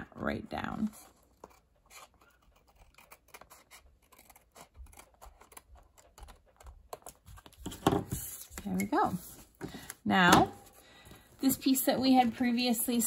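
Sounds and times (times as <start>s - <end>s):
scissors snipping paper: 0.9s - 7.7s.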